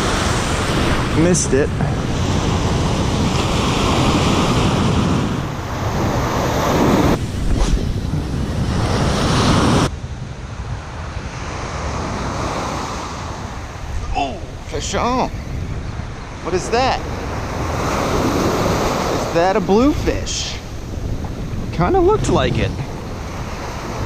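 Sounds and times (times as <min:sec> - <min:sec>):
ocean surf breaking: 0:00.0 - 0:24.0
wind buffeting microphone: 0:00.0 - 0:24.0.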